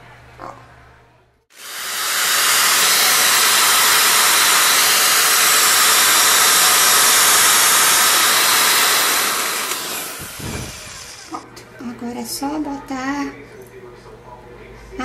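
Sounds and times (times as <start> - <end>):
electric drill boring into wall: 1.5 - 11.4.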